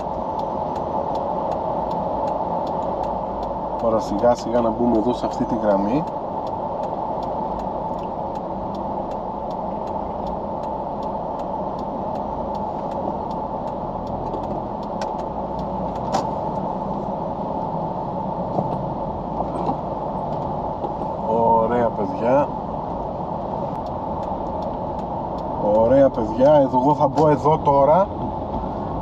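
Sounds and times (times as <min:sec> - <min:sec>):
faint regular ticking: 0:00.0 - 0:17.0, 0:23.7 - 0:28.0
car engine low rumble: 0:00.0 - 0:29.0.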